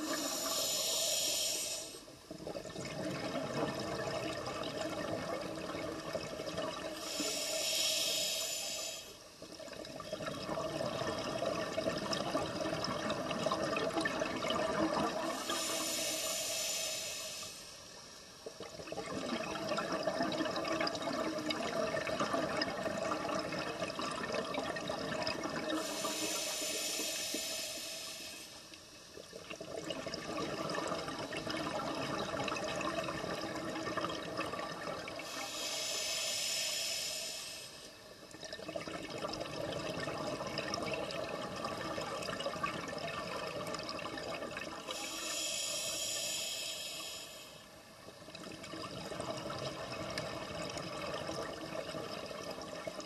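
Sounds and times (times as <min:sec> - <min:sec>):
regulator inhalation hiss: 0:00.0 - 0:02.2, 0:07.0 - 0:09.3, 0:15.3 - 0:18.0, 0:25.7 - 0:28.7, 0:35.2 - 0:38.0, 0:44.9 - 0:47.8.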